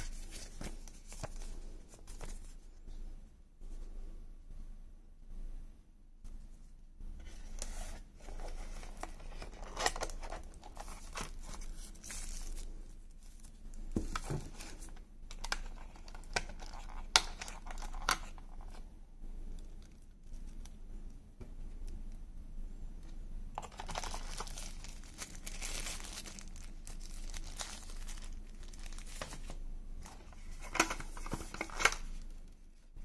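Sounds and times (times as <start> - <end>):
packaging rustling and crinkling: 0.0 - 2.7, 7.2 - 18.9, 23.6 - 33.0.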